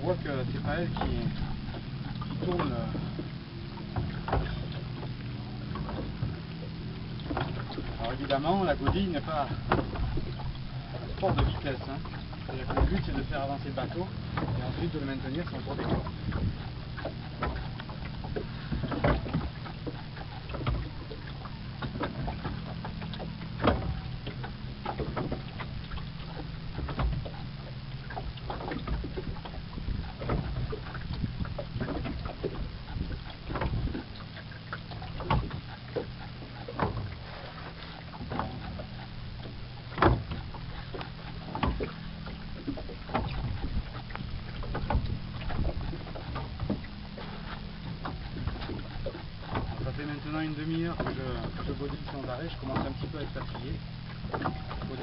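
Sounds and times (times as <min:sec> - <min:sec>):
sculling oar knocking and clicking: 0:00.0 - 0:55.0
steady low hum: 0:00.0 - 0:55.0.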